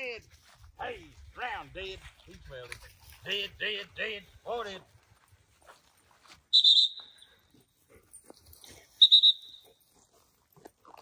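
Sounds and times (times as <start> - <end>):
trilled dog whistle blasts: 6.5 - 7.3, 9.0 - 9.8.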